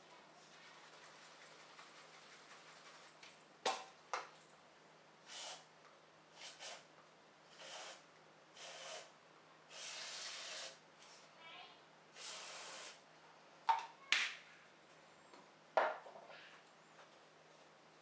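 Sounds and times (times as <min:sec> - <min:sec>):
whipped cream dispenser hissing: 0:05.2 - 0:05.7, 0:06.4 - 0:06.9, 0:07.5 - 0:08.0, 0:08.6 - 0:09.1, 0:09.7 - 0:10.8, 0:12.2 - 0:13.0.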